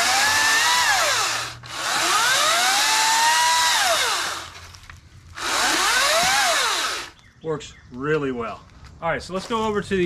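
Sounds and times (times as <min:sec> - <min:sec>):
electric chainsaw motor whining: 0:00.0 - 0:07.2.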